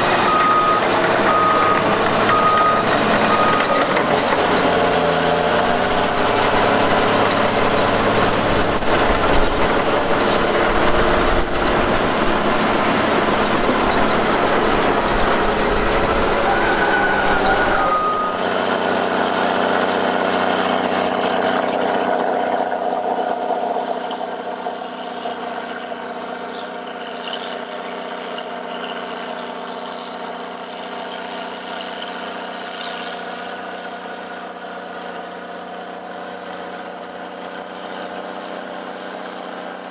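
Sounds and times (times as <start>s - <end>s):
heavy diesel machinery running: 0.0s - 39.9s
high beep: 0.2s - 3.8s, 17.6s - 18.4s.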